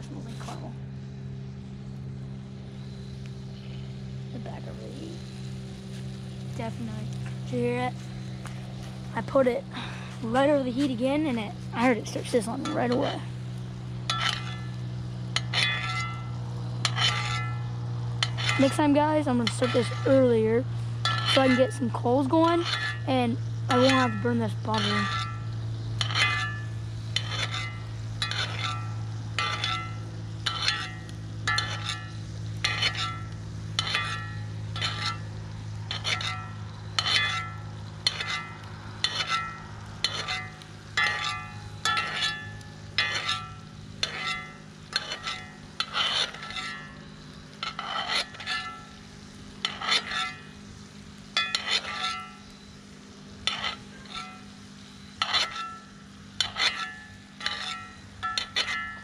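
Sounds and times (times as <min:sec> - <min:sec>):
steady low hum: 0:00.0 - 0:59.0
steak sizzling in a skillet: 0:10.2 - 0:59.0
utensil scraping and tapping pan: 0:14.0 - 0:17.6, 0:18.2 - 0:20.1, 0:21.0 - 0:22.0, 0:23.7 - 0:35.3, 0:35.9 - 0:46.9, 0:47.5 - 0:48.9, 0:49.6 - 0:50.5, 0:51.3 - 0:52.4, 0:53.4 - 0:54.5, 0:55.2 - 0:59.0.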